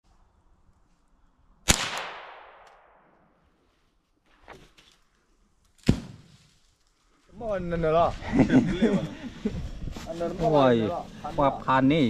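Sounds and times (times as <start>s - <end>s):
gunshot echoing: 1.7s - 3.2s.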